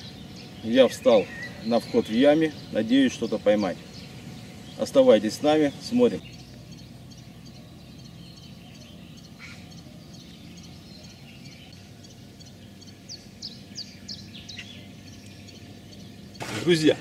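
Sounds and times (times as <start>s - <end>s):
small birds chirping: 0.0s - 17.0s
steady low hum: 0.0s - 17.0s.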